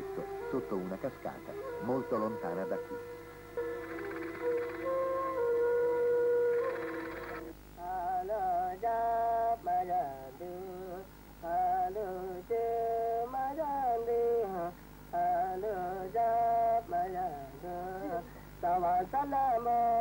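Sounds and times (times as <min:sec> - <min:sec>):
man singing a solo chant: 0:07.8 - 0:20.0.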